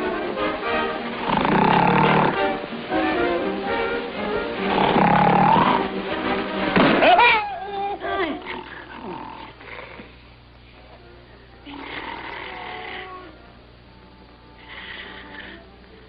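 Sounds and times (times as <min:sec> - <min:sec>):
wailing child-like cry: 0:07.0 - 0:08.9, 0:11.7 - 0:13.4.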